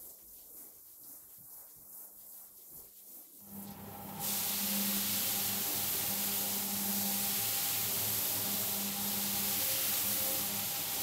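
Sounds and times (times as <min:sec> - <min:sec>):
rotating brush hissing in foam: 0:00.0 - 0:11.0
scrubbing machine motor hum: 0:03.5 - 0:11.0.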